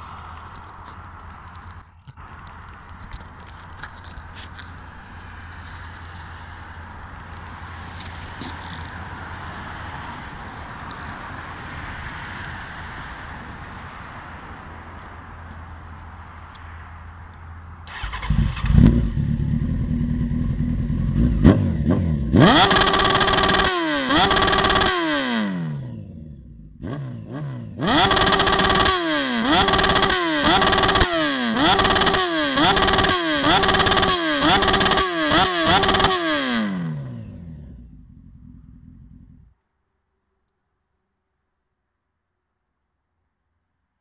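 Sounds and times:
motorcycle engine idling and revving: 0.0 - 39.6.

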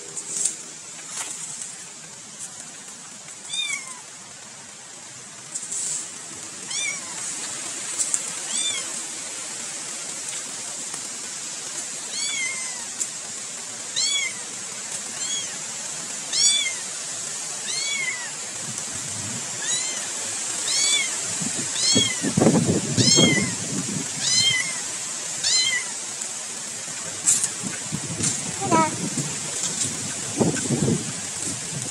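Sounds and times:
cat meowing: 3.5 - 4.1, 6.7 - 7.2, 8.5 - 8.9, 12.1 - 13.0, 13.9 - 14.4, 15.1 - 15.6, 17.6 - 18.4, 19.6 - 22.3, 23.0 - 23.6, 24.2 - 24.8, 25.4 - 26.0, 28.6 - 29.0.

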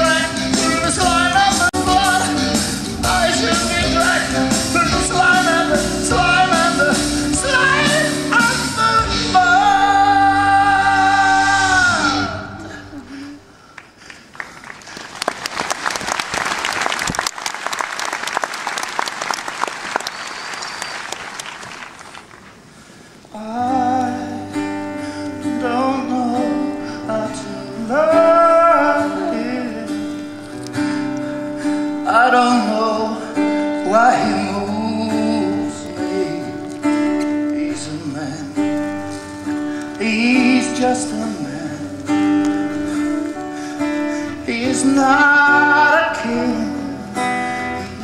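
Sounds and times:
guitar and keyboard accompaniment: 0.0 - 12.8, 23.6 - 48.0
man singing: 0.0 - 13.4, 23.3 - 30.3, 31.9 - 48.0
audience applauding: 13.8 - 22.6.

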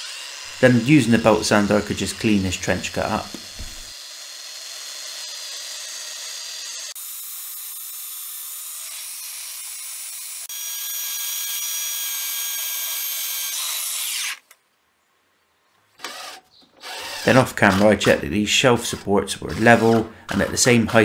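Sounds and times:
belt sander sanding wood: 0.0 - 4.2, 16.8 - 21.0.

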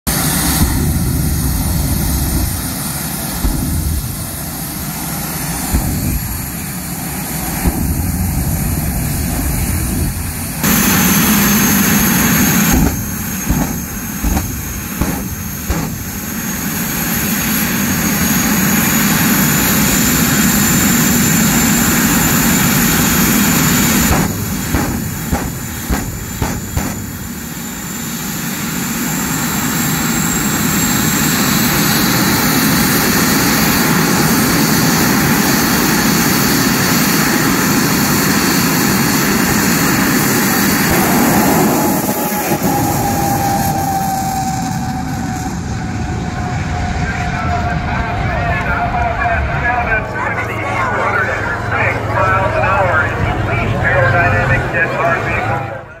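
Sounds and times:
jet engine whine and rush: 0.0 - 56.0
sharp engine pops: 3.4 - 4.2, 5.7 - 6.3, 7.6 - 8.1, 12.6 - 16.3, 24.1 - 27.3.

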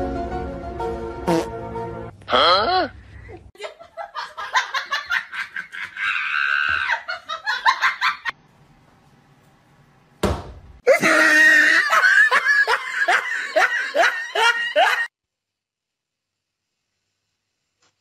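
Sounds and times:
person laughing: 2.4 - 8.3, 10.9 - 15.1
thump: 10.2 - 10.7.

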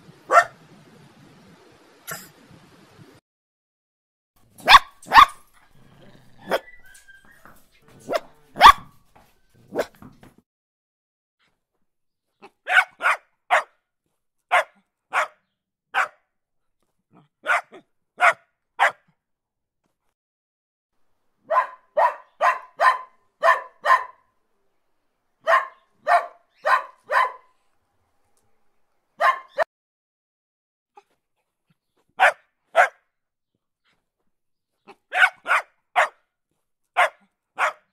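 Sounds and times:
dog barking: 0.3 - 0.6, 4.6 - 5.5, 6.1 - 7.0, 8.0 - 9.0, 9.7 - 10.0, 12.6 - 13.8, 14.5 - 16.2, 17.2 - 19.1, 21.4 - 24.3, 25.4 - 27.6, 29.2 - 29.7, 32.2 - 33.0, 34.9 - 36.2, 37.0 - 37.9.

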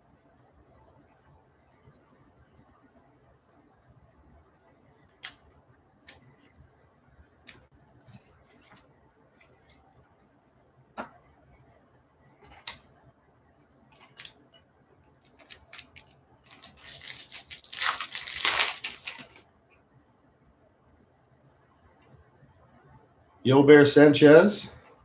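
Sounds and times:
foil wrapper crinkling and tearing: 15.2 - 19.4.

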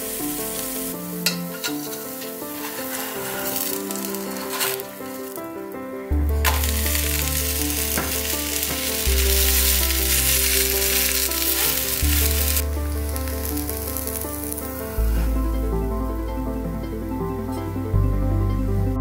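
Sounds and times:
batter sizzling in oil: 0.0 - 5.4, 6.4 - 14.9
background music with bass: 5.5 - 19.0.

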